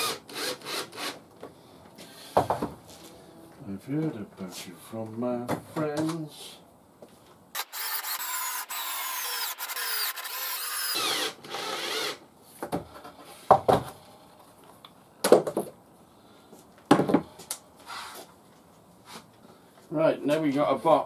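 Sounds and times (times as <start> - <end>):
cordless drill boring into wood: 0.0 - 1.2, 7.6 - 12.2.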